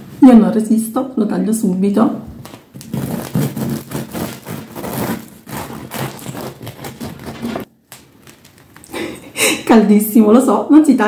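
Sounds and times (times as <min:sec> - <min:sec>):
knife sawing bread crust: 0:02.9 - 0:07.6.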